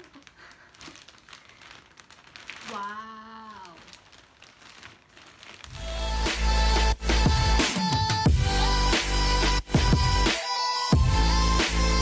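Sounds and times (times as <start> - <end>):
plastic bag crinkling: 0.0 - 7.4
electronic music with heavy bass: 5.8 - 12.0.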